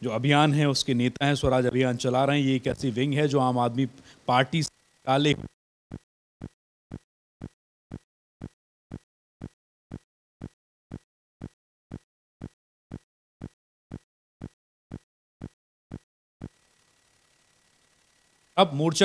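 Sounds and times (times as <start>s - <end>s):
stuttering audio glitch: 5.1s - 5.6s.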